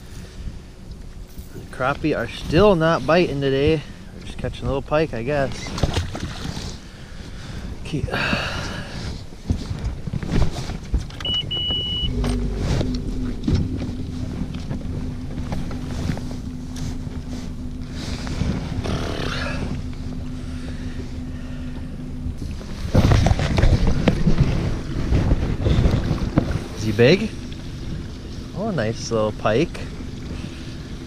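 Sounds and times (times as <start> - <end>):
outboard motor humming: 0.0 - 31.0
water noise: 0.0 - 31.0
wind buffeting microphone: 22.2 - 28.9.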